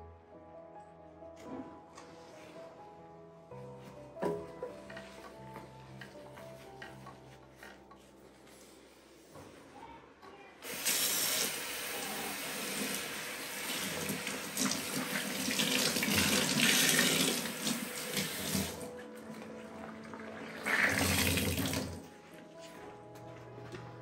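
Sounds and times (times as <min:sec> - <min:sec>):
tap running water into sink: 0:10.7 - 0:18.9, 0:20.2 - 0:22.0.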